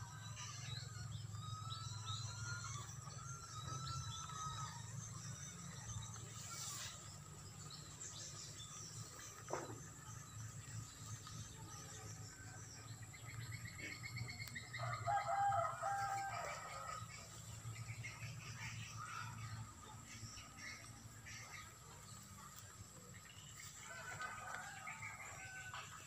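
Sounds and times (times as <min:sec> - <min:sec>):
rooster crowing: 0:14.8 - 0:17.3, 0:23.8 - 0:26.0.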